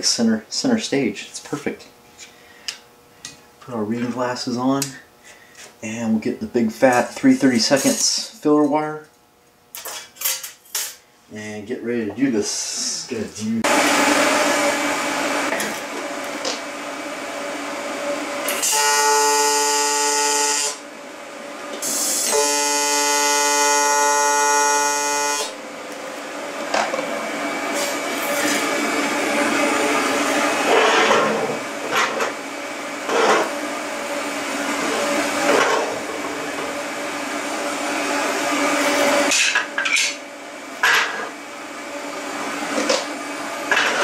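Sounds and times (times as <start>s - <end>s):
welding arc buzzing: 17.6s - 20.9s, 21.7s - 26.8s.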